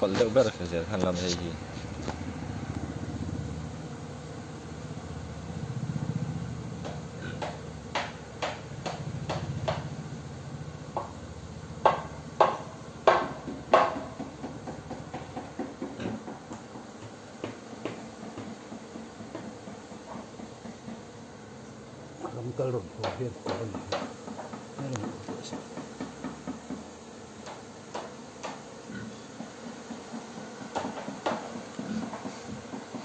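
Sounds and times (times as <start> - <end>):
sharp knocks: 6.8 - 9.9, 11.8 - 21.1, 23.0 - 28.7, 29.4 - 33.0.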